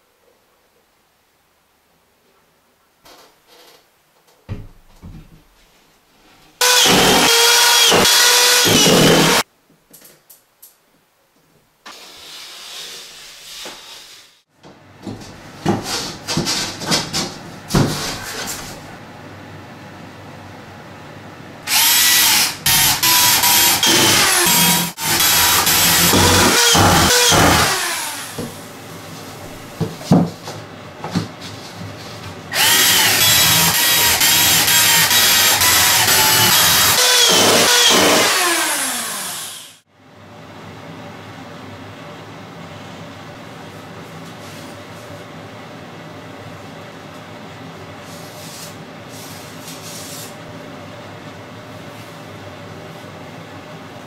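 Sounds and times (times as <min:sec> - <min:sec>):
knocks and handling noise: 0:04.2 - 0:05.8
power drill running: 0:06.6 - 0:09.4, 0:21.7 - 0:28.4, 0:32.5 - 0:39.8.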